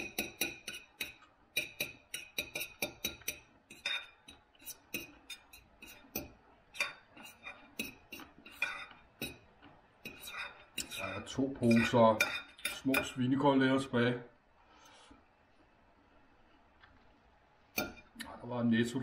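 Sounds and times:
cutlery clinking on a plate: 0.0s - 13.2s.

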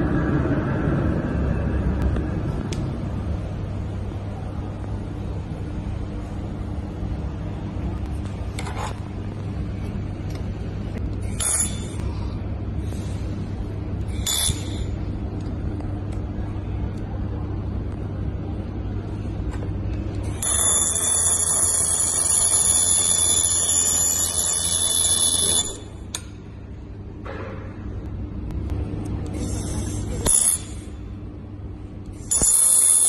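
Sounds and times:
low machine hum: 0.0s - 33.0s
laser welder hissing whine: 32.2s - 33.0s.

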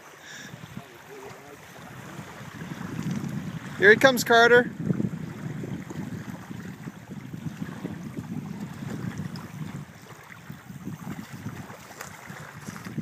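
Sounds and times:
small waves lapping: 0.0s - 13.0s
wind rumbling on microphone: 0.3s - 13.0s
little splashes: 5.2s - 13.0s.

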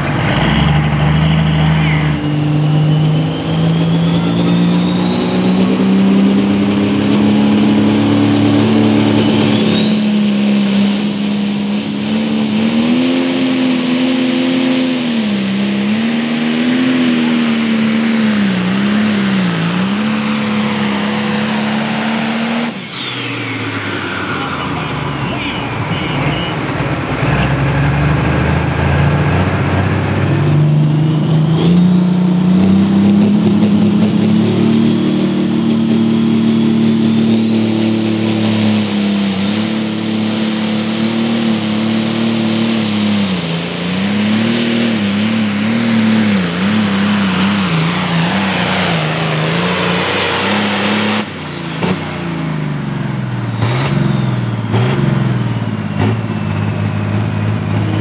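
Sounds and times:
diesel tractor engine under load: 0.0s - 58.0s
tractor engine revving: 0.0s - 58.0s
turbo whine: 0.6s - 58.0s.

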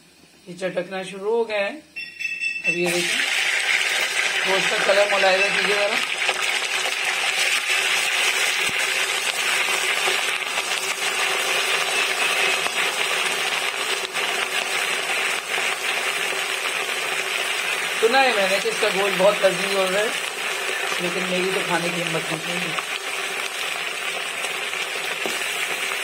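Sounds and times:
chicken frying in hot oil: 2.7s - 26.0s.

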